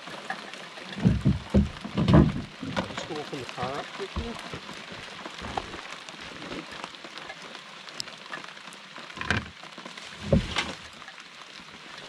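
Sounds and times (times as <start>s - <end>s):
rain falling on water: 0.0s - 12.0s
gear knocking in canoe: 0.8s - 3.2s, 4.0s - 5.8s.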